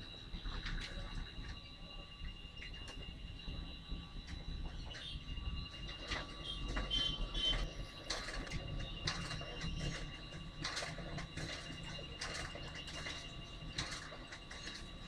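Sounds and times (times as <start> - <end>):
high-pitched whine: 0.0 - 15.0
plastic clicks and rattles: 6.0 - 14.9.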